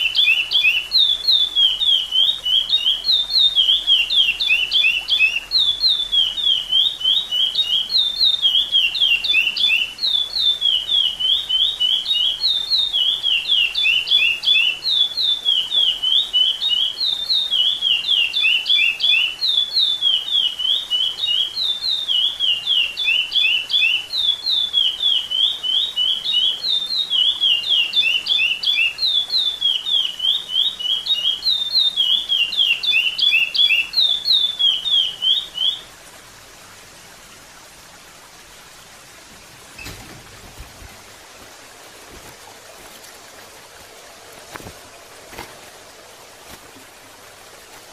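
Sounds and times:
finch singing whistled notes: 0.0s - 35.9s.

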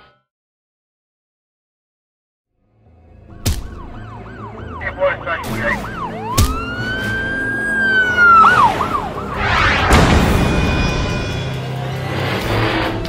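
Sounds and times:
cartoon police siren: 3.4s - 10.0s
rush of noise: 8.2s - 13.0s.

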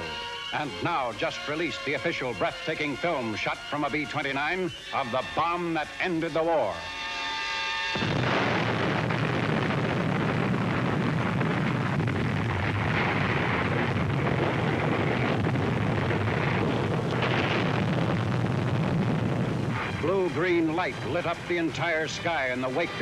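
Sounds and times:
explosion rumbling roar: 7.9s - 21.6s.

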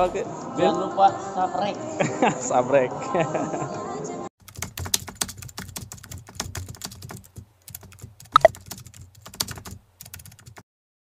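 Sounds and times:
rapid clicking and tapping: 4.4s - 10.6s.

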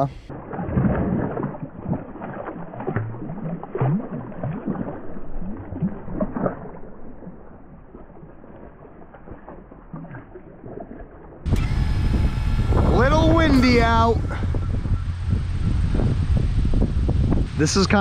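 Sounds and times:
gentle water lapping: 0.0s - 18.0s
water sloshing around a hand: 0.3s - 11.4s.

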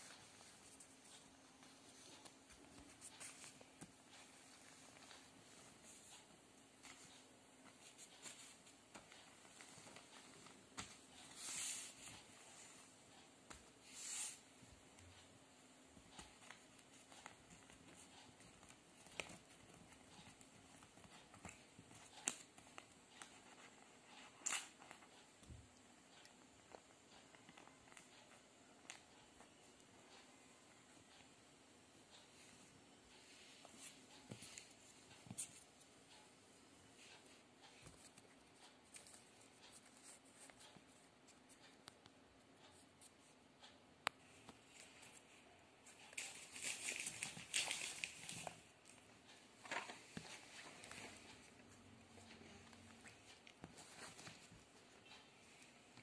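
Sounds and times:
paper rustling: 45.9s - 49.0s.

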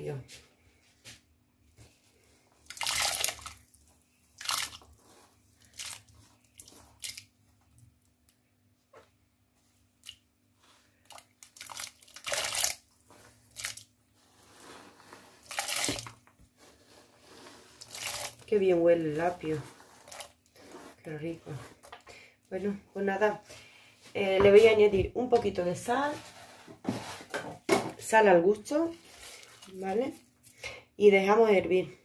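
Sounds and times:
vegetables splashing into water: 2.7s - 3.6s.

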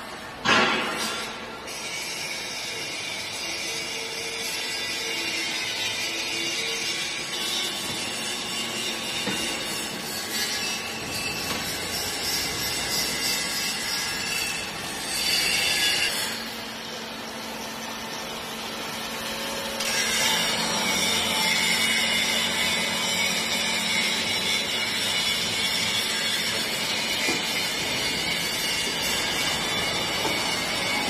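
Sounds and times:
hydraulic baler motor humming: 20.4s - 31.0s.

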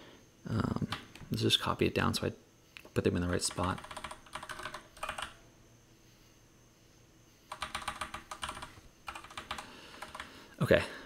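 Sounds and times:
typing on computer keyboard: 3.4s - 5.4s, 7.5s - 10.3s.

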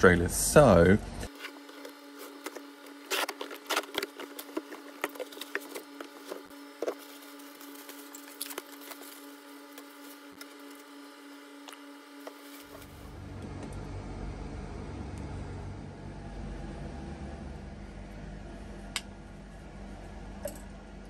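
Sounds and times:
air-conditioner hum: 0.0s - 21.0s
cardboard and plastic wrapping rustling: 1.3s - 11.0s, 12.2s - 13.1s.

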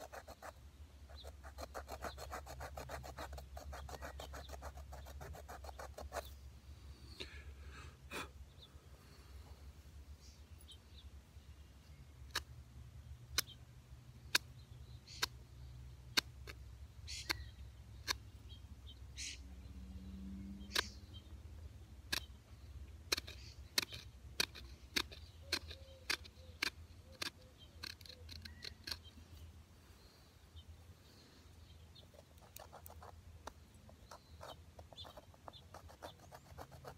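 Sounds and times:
flint scraping wood clicks: 22.0s - 29.5s, 32.1s - 36.9s.

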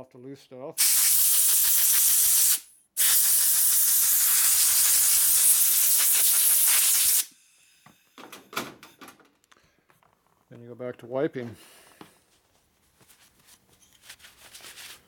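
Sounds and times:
compressed air blow gun hissing: 0.8s - 7.5s.

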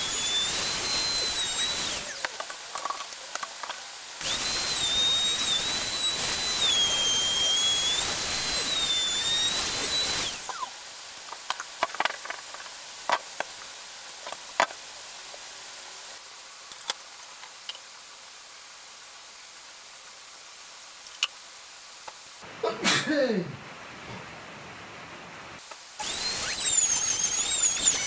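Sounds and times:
room hiss: 0.0s - 28.0s.

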